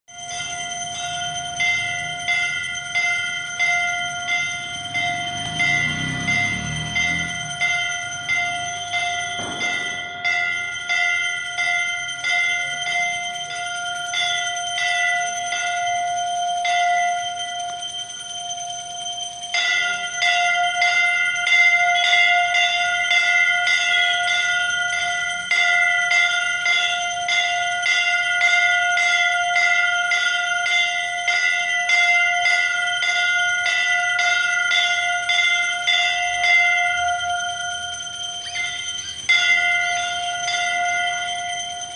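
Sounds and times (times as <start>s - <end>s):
temple bell ringing: 0.1s - 41.9s.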